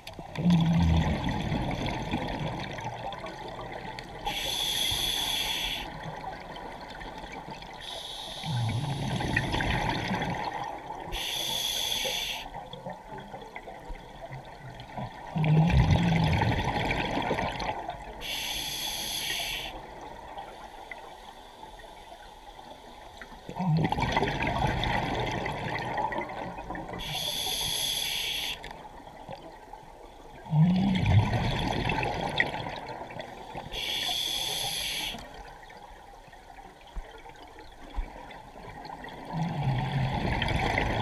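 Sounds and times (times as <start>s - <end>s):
exhaled bubbles gushing: 0.2s - 4.4s, 6.1s - 11.0s, 14.4s - 18.2s, 23.5s - 27.1s, 30.4s - 33.4s, 38.7s - 41.0s
regulator hissing inhale: 4.3s - 5.9s, 7.8s - 9.2s, 11.1s - 12.6s, 18.2s - 19.8s, 27.0s - 28.7s, 33.7s - 35.3s.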